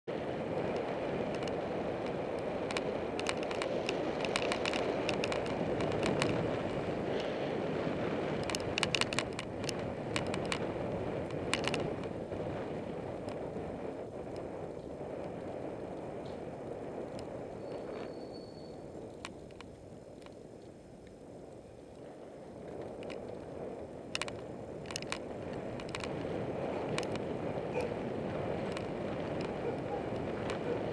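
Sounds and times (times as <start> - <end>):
tyres on asphalt: 0.1 - 30.9
wind rush: 0.1 - 30.9
bike clicks and rattles: 0.5 - 30.9.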